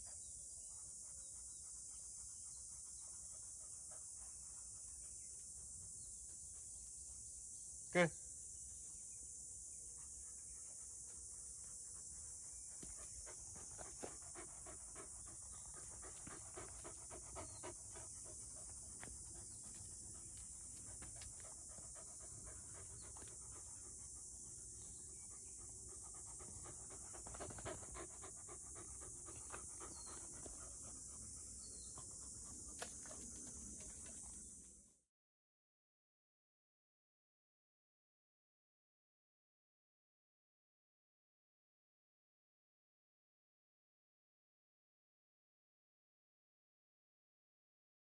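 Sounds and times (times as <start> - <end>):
puppy panting: 10.1 - 34.4.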